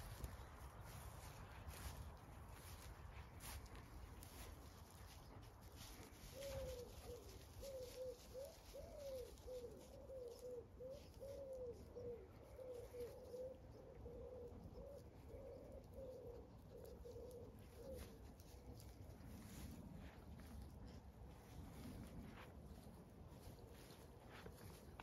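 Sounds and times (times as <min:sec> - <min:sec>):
pigeon cooing: 0:05.8 - 0:25.0.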